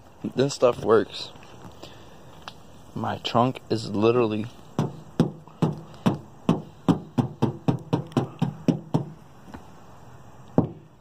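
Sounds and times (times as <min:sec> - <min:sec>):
fingers tapping on car metal: 0:04.8 - 0:09.2.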